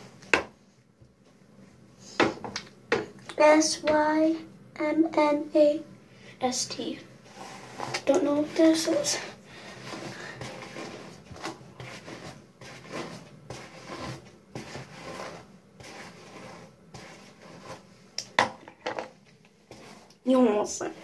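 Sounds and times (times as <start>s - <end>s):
hairbrush through wet hair: 7.2s - 18.3s, 19.7s - 21.0s.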